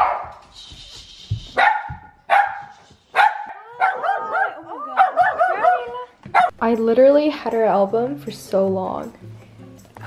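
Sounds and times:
small dog barking: 0:00.0 - 0:00.4, 0:01.6 - 0:06.5.

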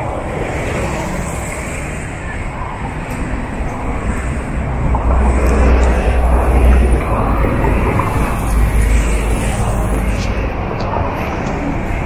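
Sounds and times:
cars passing: 0:00.0 - 0:12.0
deep low rumble: 0:02.4 - 0:12.0.

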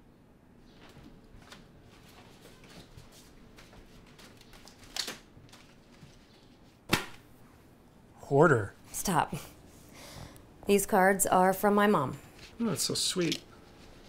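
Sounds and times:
paper cards rustling: 0:00.8 - 0:06.8, 0:12.3 - 0:14.0.

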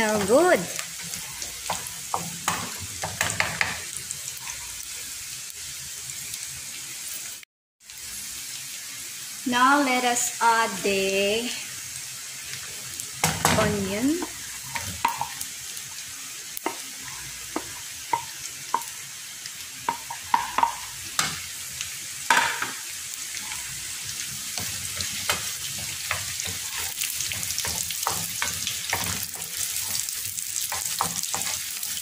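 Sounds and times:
wooden spatula scraping pan: 0:00.0 - 0:03.8
onions sizzling in butter: 0:00.0 - 0:32.0.

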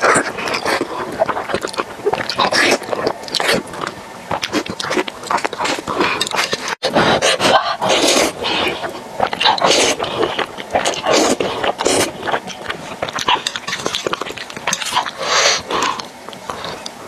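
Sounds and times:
noodle slurping: 0:00.0 - 0:16.9
wet chewing: 0:00.0 - 0:17.0.

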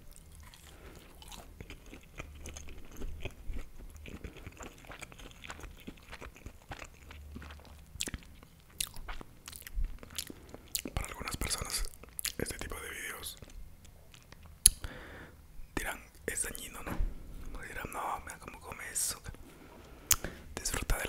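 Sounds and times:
crunchy chewing: 0:00.0 - 0:14.9.

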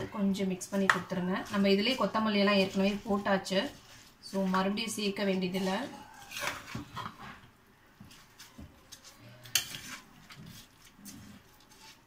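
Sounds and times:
spoon scraping in metal pot: 0:09.4 - 0:10.9.

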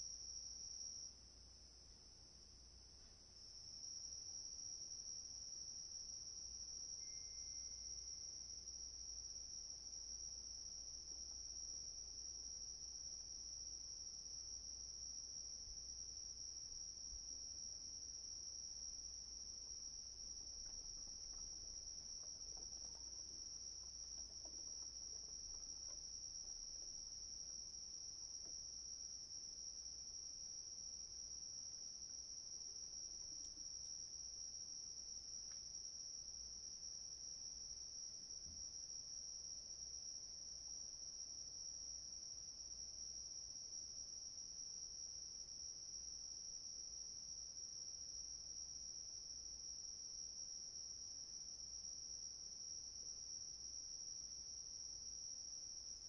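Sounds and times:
crickets chirping: 0:02.8 - 0:56.0.

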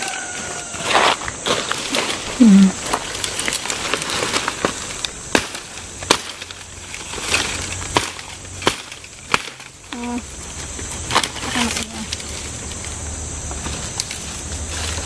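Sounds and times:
dry leaves rustling: 0:00.0 - 0:15.0
short vocal sound: 0:02.3 - 0:02.8
sticks snapping: 0:02.8 - 0:09.7.

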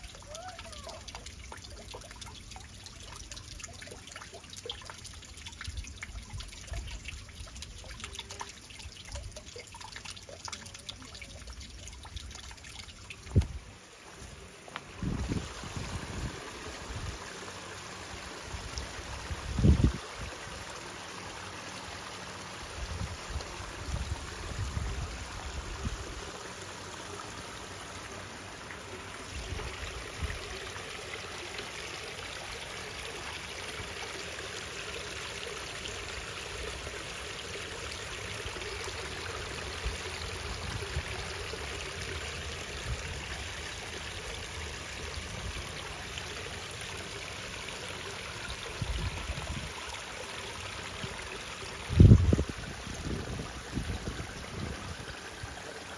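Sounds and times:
stream water trickling: 0:00.0 - 0:55.9.

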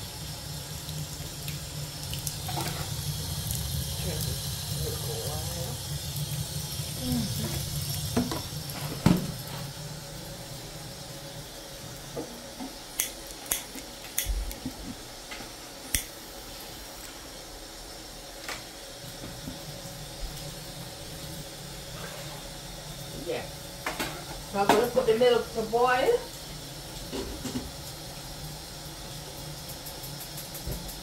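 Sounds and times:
steady hiss: 0:00.0 - 0:31.0
pots and utensils clinking: 0:02.4 - 0:03.0, 0:07.3 - 0:09.8, 0:23.8 - 0:25.3, 0:27.0 - 0:27.8.

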